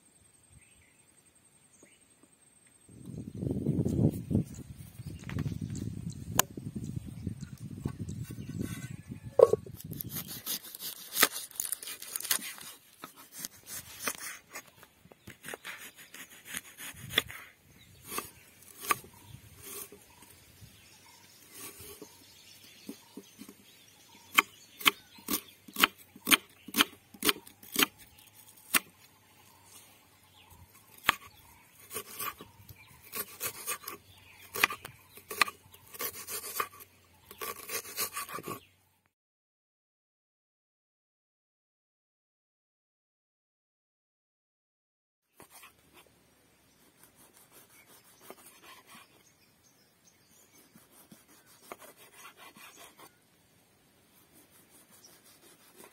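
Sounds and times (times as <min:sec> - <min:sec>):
knife tapping on wooden board: 0:09.4 - 0:09.6.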